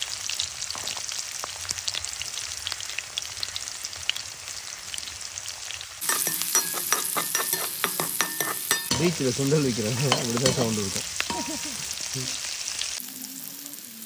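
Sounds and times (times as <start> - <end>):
shallots sizzling in hot oil: 0.0 - 14.0
ladle scraping metal pan: 6.0 - 11.8.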